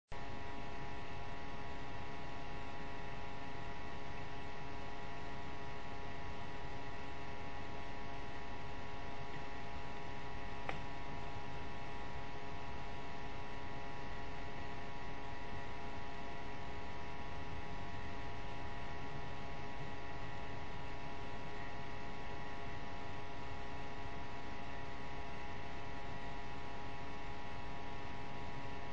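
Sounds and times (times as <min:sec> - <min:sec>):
electrical hum with whining tones: 0:00.1 - 0:28.9
faint click: 0:10.6 - 0:10.9.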